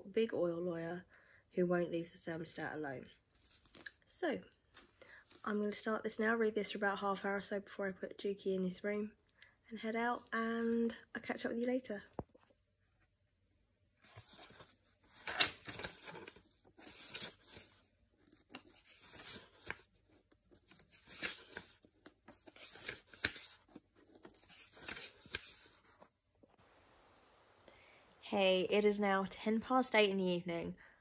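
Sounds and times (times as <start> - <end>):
papery page rustles: 3.4 - 4.0, 14.0 - 26.2.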